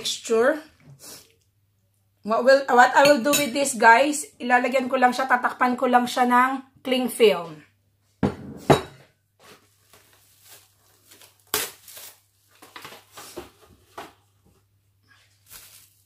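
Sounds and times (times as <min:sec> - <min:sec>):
glass bowl set on table: 0:08.2 - 0:09.1
cling film crinkling: 0:09.6 - 0:13.5, 0:15.3 - 0:16.0
cling film ripping: 0:09.9 - 0:13.4, 0:15.4 - 0:16.0.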